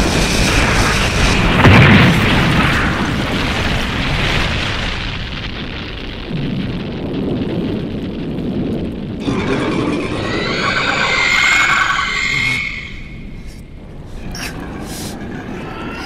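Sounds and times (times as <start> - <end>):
explosion rumble: 0.0 - 16.0
monster screeching roar: 9.2 - 13.2, 14.3 - 16.0.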